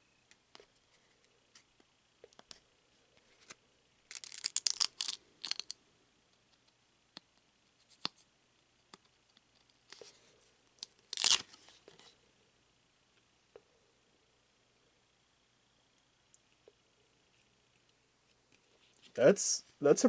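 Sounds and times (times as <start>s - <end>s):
cards being peeled apart: 3.3s - 5.8s, 10.8s - 12.1s.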